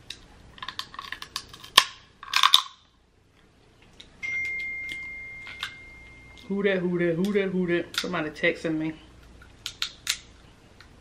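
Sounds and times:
crab shell crunching and cracking: 0.0 - 2.8.

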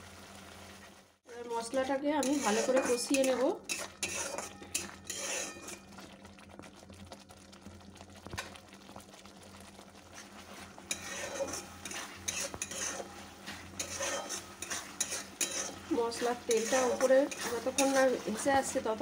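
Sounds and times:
soft sizzle: 0.0 - 19.0
spatula scraping a pan: 1.7 - 6.1, 10.1 - 18.9.

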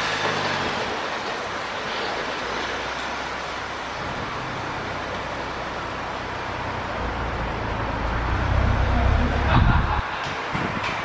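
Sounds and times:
deep rumble: 4.0 - 10.0.

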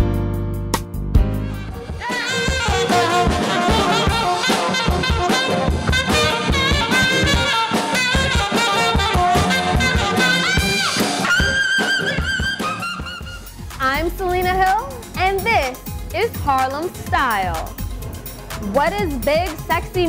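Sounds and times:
steady drum beat: 0.8 - 20.0
saxophone: 1.4 - 13.8
trombone: 1.5 - 13.2.

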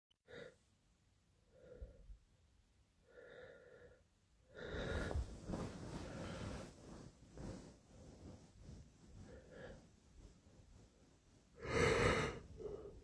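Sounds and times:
man breathing: 3.0 - 7.6, 11.6 - 13.0.

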